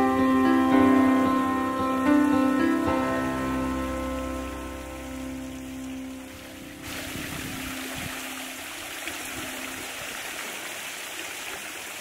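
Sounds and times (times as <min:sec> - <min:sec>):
water spilling into pool: 0:02.9 - 0:12.0.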